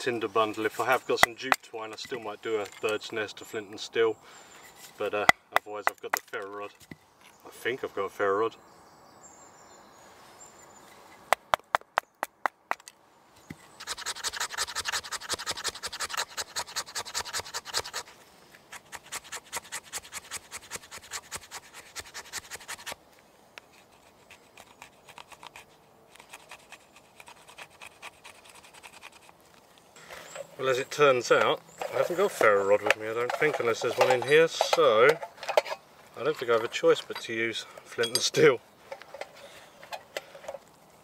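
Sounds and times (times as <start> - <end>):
knife scraping wood: 13.5 - 23.0, 23.6 - 30.5.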